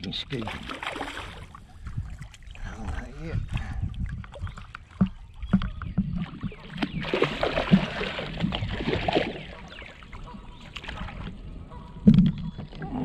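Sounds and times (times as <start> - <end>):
fish splashing in water: 0.5 - 1.6, 4.3 - 13.0.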